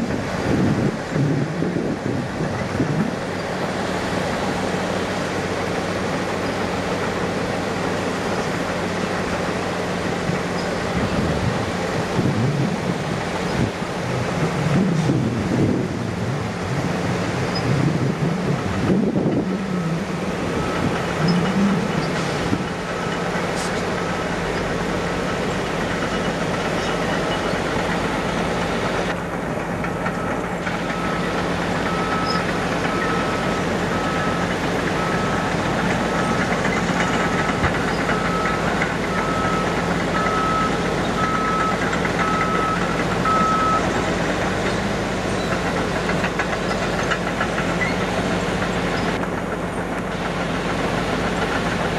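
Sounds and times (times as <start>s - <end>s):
diesel truck engine idling: 0.1s - 51.9s
reversing alarm beeping: 19.3s - 24.7s, 30.0s - 44.0s.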